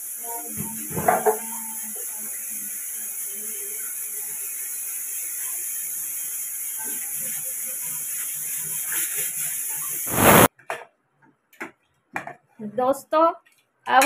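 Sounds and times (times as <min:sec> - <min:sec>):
pressure cooker hissing: 0:00.0 - 0:10.5.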